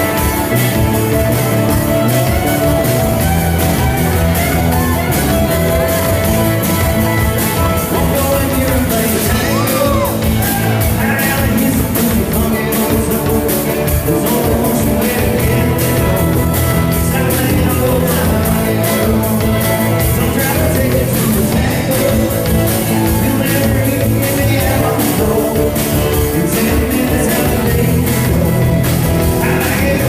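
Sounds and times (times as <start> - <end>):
fiddle: 0.0 - 11.2
acoustic guitar: 0.0 - 30.0
drum beat: 0.0 - 30.0
live rock and roll band: 0.0 - 30.0
man singing: 7.2 - 30.0.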